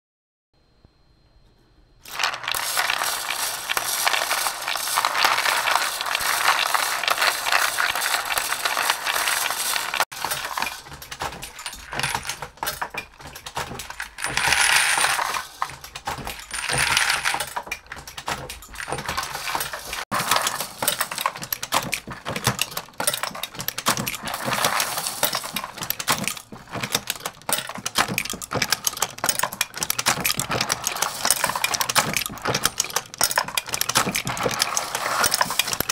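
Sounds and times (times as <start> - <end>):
bowl feeders rattling: 2.0 - 35.9
brass cases rattling: 2.1 - 35.9.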